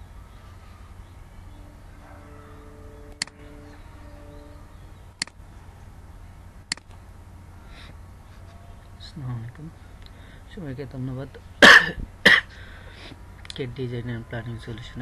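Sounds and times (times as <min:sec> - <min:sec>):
low hum: 0:00.0 - 0:10.5
faint held tones: 0:01.5 - 0:05.8.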